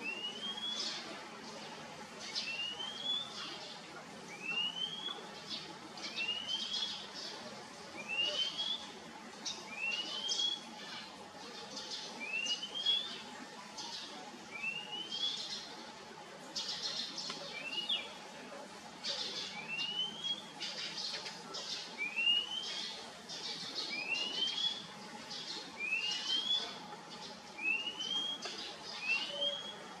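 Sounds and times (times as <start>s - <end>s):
bird whistling: 19.6s - 20.4s, 27.6s - 29.8s.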